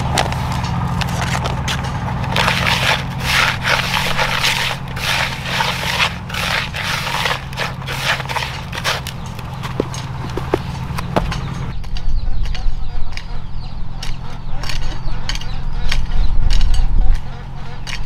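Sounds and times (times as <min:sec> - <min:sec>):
gritty scraping of sand: 0:00.0 - 0:11.7
steady low hum: 0:00.0 - 0:18.0.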